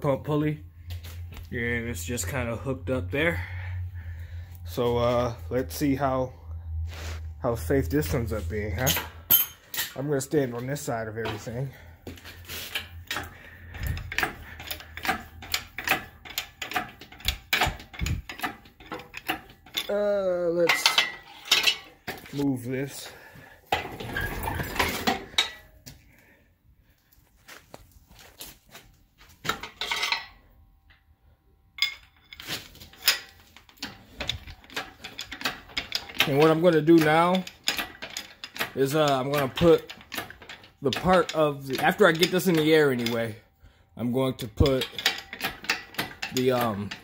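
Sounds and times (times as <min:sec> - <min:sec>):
metal tools clanking: 0:07.4 - 0:25.8, 0:29.4 - 0:31.0, 0:31.8 - 0:43.4, 0:44.0 - 0:47.0
metal hardware clinking: 0:07.9 - 0:23.0, 0:23.7 - 0:25.8, 0:29.5 - 0:31.0, 0:31.8 - 0:43.4, 0:44.4 - 0:47.0.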